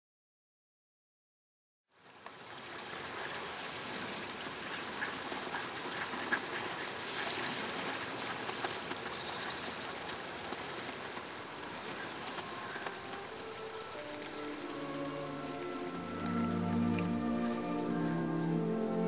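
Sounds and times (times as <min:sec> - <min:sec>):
ducks moving in water: 0:02.0 - 0:19.0
ducks quacking: 0:11.7 - 0:19.0.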